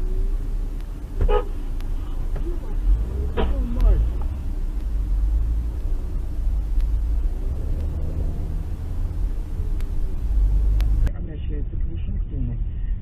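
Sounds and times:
car engine and road rumble: 0:00.0 - 0:13.0
faint ticks: 0:00.6 - 0:01.0, 0:01.7 - 0:11.1.

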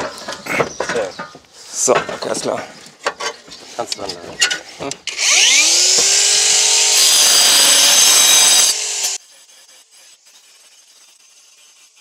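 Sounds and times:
angle grinder cutting tile: 0:05.1 - 0:12.0.

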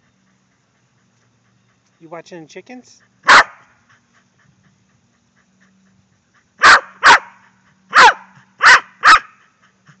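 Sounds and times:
dog barking: 0:03.2 - 0:03.7, 0:06.6 - 0:09.4.

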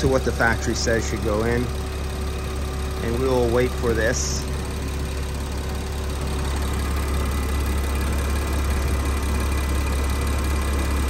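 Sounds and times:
air conditioning compressor running: 0:00.0 - 0:11.0
car engine idling: 0:00.0 - 0:11.0.

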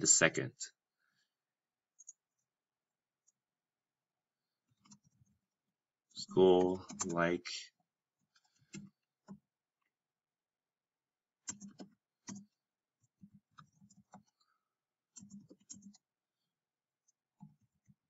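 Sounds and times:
computer keyboard keystrokes: 0:06.9 - 0:07.2, 0:11.4 - 0:12.5, 0:15.1 - 0:16.0.

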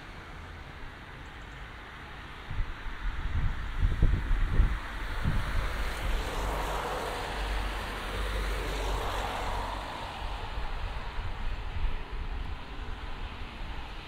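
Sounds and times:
passing vehicle engine: 0:03.2 - 0:14.0.

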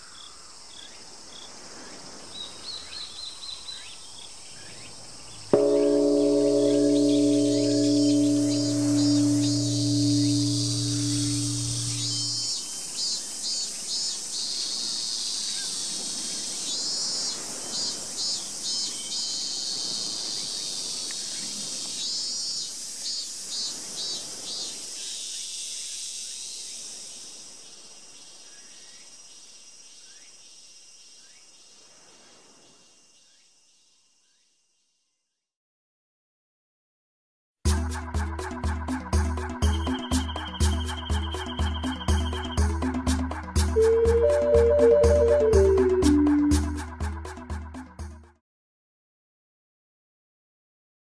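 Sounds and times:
night insects trilling: 0:00.0 - 0:33.8
rapid pulsed insect chirps: 0:05.2 - 0:14.8, 0:39.6 - 0:46.9
singing bowl ringing: 0:05.6 - 0:12.5, 0:43.8 - 0:46.8.

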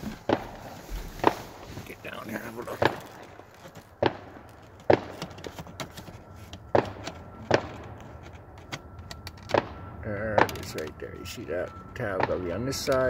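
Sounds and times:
fireworks bangs: 0:00.0 - 0:05.2.

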